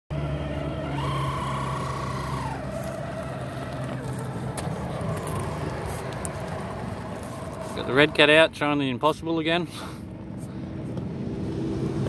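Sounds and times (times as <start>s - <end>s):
toy car motor whining: 0.2s - 8.3s.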